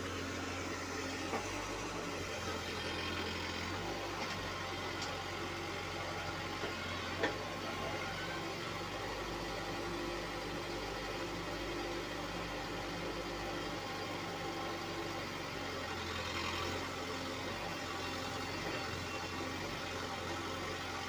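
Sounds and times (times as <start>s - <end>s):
diesel engine running: 0.0s - 9.0s.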